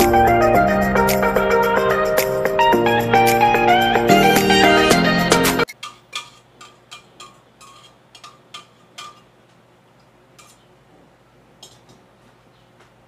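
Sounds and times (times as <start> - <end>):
background music: 0.0 - 5.7
utensil scraping saucepan: 5.7 - 9.4, 10.4 - 10.8.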